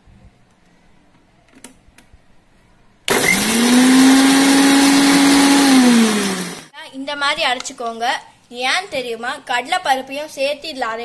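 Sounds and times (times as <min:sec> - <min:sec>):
mixer grinder running: 0:03.1 - 0:06.7.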